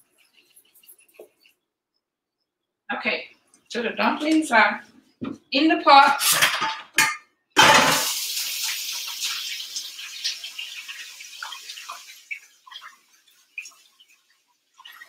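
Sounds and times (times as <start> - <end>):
water hissing and splashing: 8.0 - 15.0
water dripping: 8.1 - 15.0.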